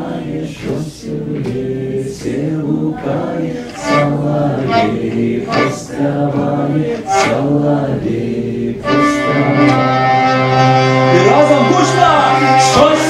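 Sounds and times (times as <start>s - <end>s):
man singing: 2.1s - 10.3s, 11.1s - 13.0s
hurdy-gurdy drone and melody: 3.0s - 7.7s, 8.8s - 13.0s.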